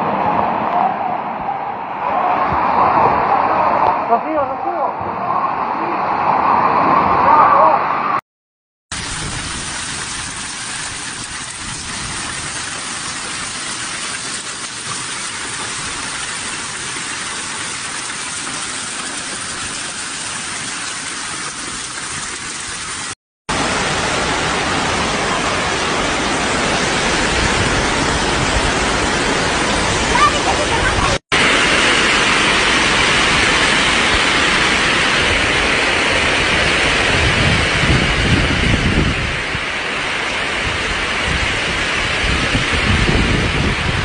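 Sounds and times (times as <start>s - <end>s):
floodwater rushing down street: 8.9s - 44.0s
torrential downpour: 8.9s - 44.0s.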